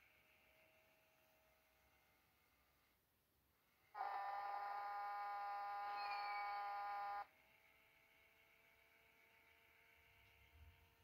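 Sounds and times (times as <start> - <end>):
plush toy buzzing: 3.9 - 7.3.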